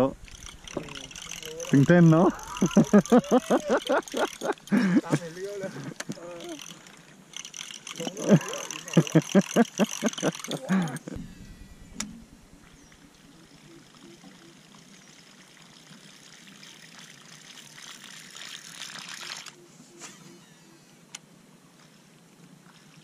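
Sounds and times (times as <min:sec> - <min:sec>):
lure splashing across water: 0:00.2 - 0:05.3, 0:13.5 - 0:19.6.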